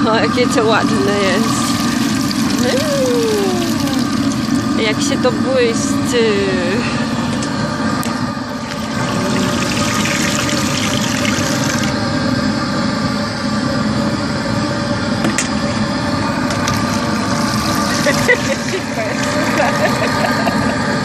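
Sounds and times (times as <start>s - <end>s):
continuous mechanical hum: 0.0s - 21.0s
water pouring into tank: 0.9s - 5.2s, 7.0s - 12.1s, 16.0s - 20.7s.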